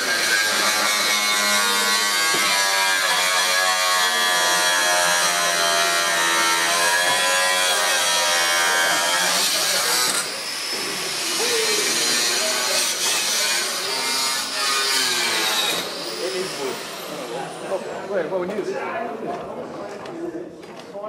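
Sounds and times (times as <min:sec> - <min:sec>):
electric grinder cutting steel: 0:00.0 - 0:17.8.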